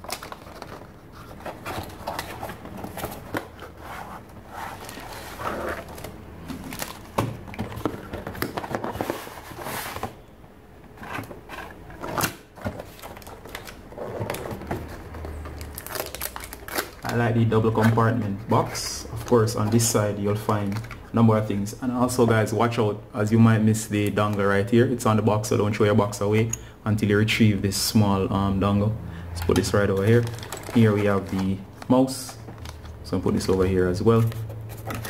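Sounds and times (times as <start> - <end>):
cardboard box scraping and rustling: 1.2 - 6.9, 7.7 - 10.2.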